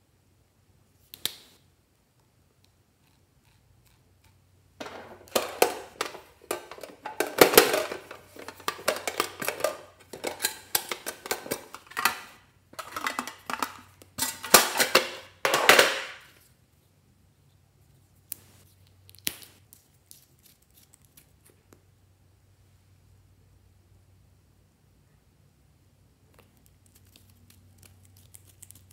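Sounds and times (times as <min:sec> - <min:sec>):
tin box crackling and clicking: 0:04.8 - 0:16.2.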